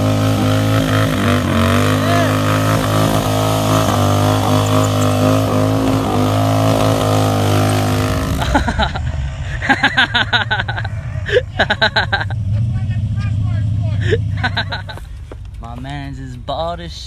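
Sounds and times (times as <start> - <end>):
motorcycle engine revving high: 0.0 - 14.9
voices: 1.8 - 6.8, 9.4 - 17.0.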